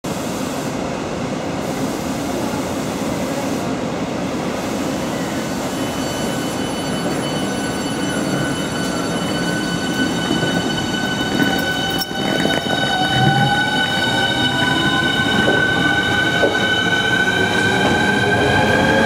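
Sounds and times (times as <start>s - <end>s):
train wheels rumbling: 5.6s - 19.0s.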